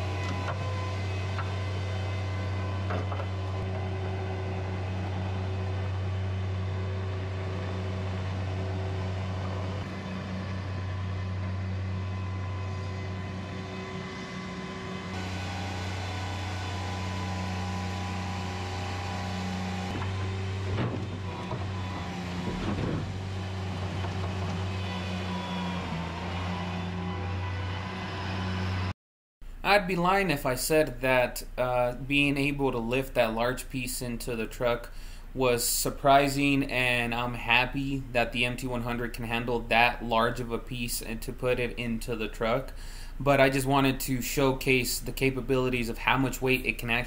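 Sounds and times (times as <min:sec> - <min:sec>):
diesel engine running: 0:00.0 - 0:28.9.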